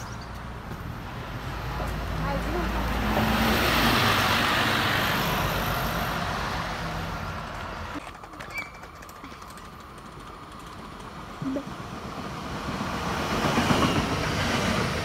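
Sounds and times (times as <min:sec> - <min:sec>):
bus driving off: 0:00.0 - 0:08.0
distant train: 0:00.0 - 0:15.0.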